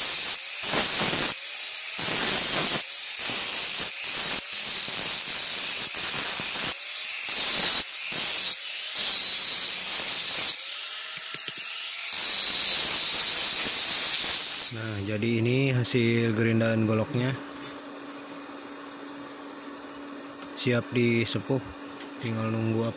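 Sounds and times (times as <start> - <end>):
angle grinder grinding steel: 0.0 - 17.9.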